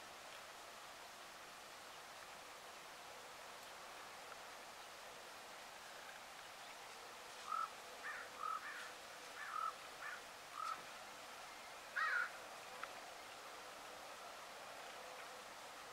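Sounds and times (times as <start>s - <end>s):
bird calling: 7.4s - 10.8s, 11.9s - 12.4s.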